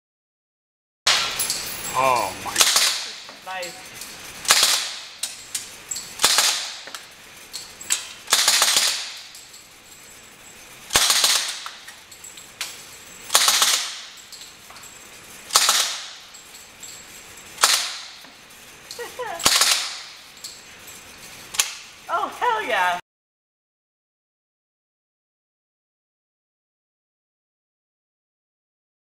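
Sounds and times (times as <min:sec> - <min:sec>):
suppressed gunshots with echo: 0:04.5 - 0:05.1, 0:06.2 - 0:06.8, 0:08.3 - 0:09.2, 0:10.9 - 0:11.7, 0:13.3 - 0:14.1, 0:15.5 - 0:16.2, 0:17.6 - 0:18.1.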